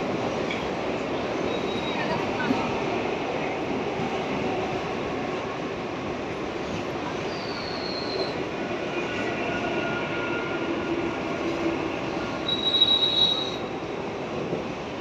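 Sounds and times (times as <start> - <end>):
electric train rumbling: 0.0 - 15.0
train wheels squealing: 1.5 - 2.2, 7.2 - 8.4, 12.4 - 13.7.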